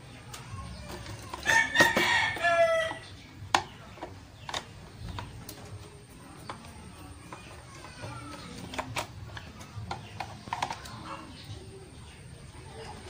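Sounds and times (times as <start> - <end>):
rooster crowing: 1.4 - 3.0.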